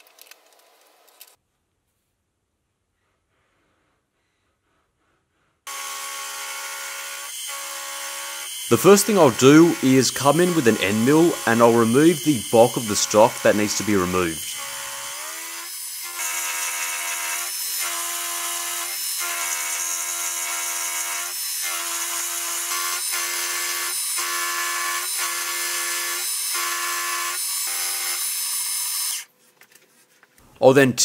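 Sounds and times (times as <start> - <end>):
milling machine spindle whine: 5.7 - 15.1.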